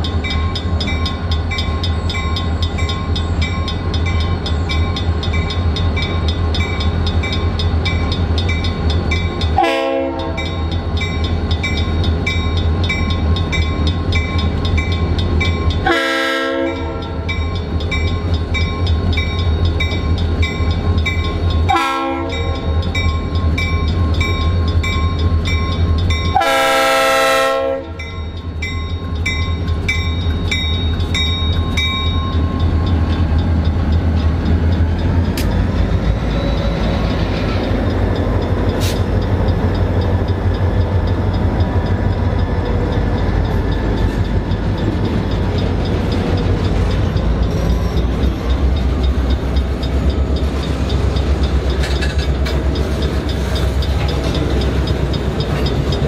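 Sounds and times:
crossing signal bell ringing: 0.0 - 56.0
diesel locomotive engines droning: 0.0 - 56.0
train air horn blasts: 9.6 - 10.5, 15.8 - 17.2, 21.7 - 22.6, 26.3 - 28.0.

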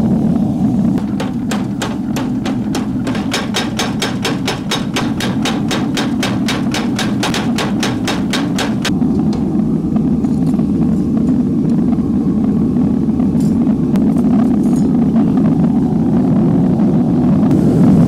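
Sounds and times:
low hum: 0.0 - 18.0
power hammer striking hot steel: 1.0 - 9.0.

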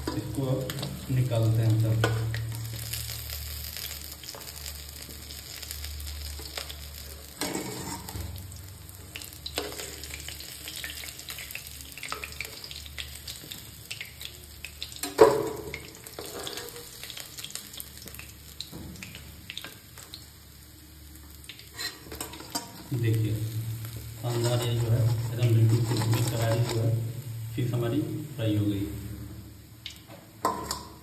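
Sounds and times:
fish sizzling in hot oil: 0.0 - 31.0
metal spatula scraping a pan: 7.4 - 8.2, 16.2 - 16.9, 21.7 - 22.9, 24.2 - 27.1.

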